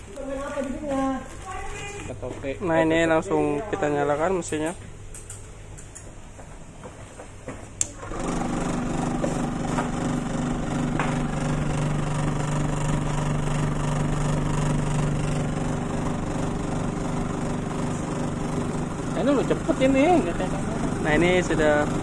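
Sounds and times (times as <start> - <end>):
sieve motor humming: 7.8 - 22.0.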